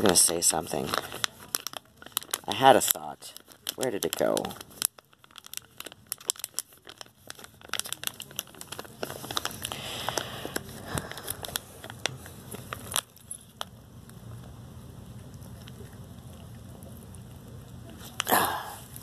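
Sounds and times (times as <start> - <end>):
rustling: 0.0 - 13.6
crinkling and crackling: 0.0 - 19.0.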